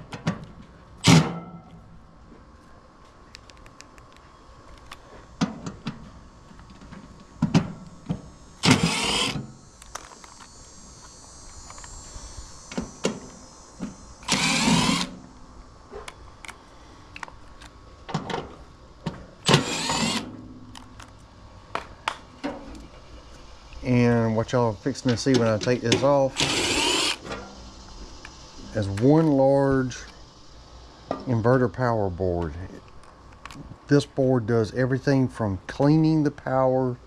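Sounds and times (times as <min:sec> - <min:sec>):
impact driver running: 0:08.1 - 0:12.0, 0:12.7 - 0:15.2, 0:19.4 - 0:20.3, 0:25.4 - 0:27.3.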